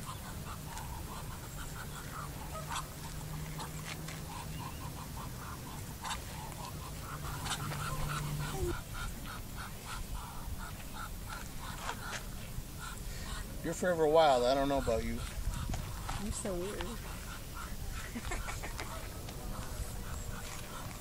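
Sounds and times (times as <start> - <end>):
duck giving breathy huffs: 12.8 - 13.6.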